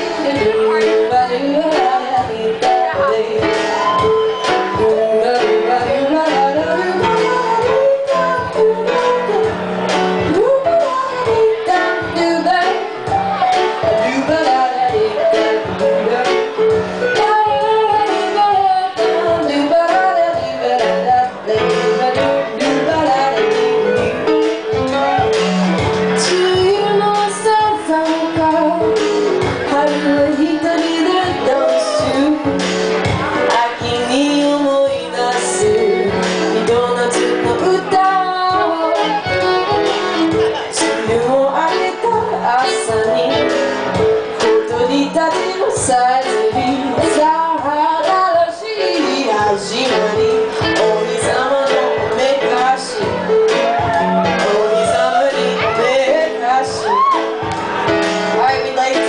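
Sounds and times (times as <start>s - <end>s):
woman singing into a microphone: 0.0s - 24.2s, 26.1s - 57.7s, 58.3s - 59.0s
band accompaniment: 0.0s - 59.0s
violin: 37.9s - 42.3s.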